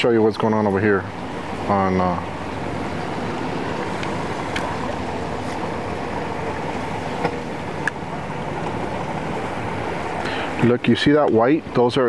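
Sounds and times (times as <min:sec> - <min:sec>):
boat engine running: 0:00.0 - 0:12.0.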